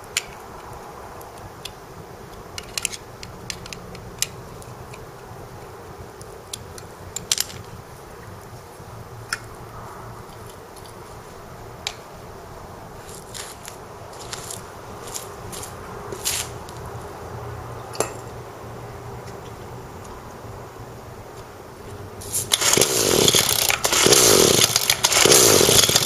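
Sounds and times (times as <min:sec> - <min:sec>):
screwdriver clicking on metal screws: 0:01.6 - 0:05.0, 0:22.4 - 0:26.0.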